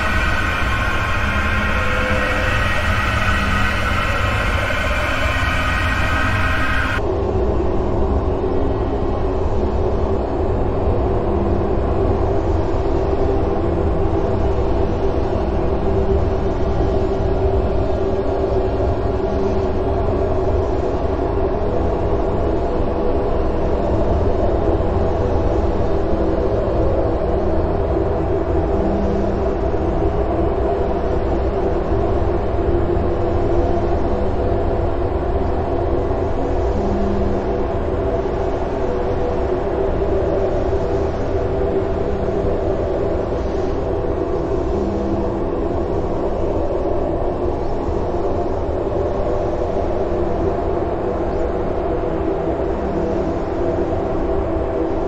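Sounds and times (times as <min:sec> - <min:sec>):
distorted noise music drone: 0:00.0 - 0:07.0.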